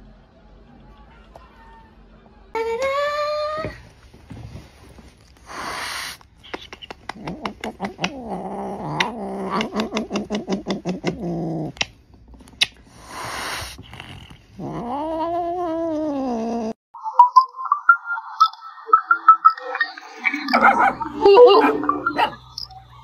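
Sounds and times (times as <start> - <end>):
cat hissing: 5.4 - 11.8, 12.6 - 16.7
cat yowling: 20.6 - 22.5.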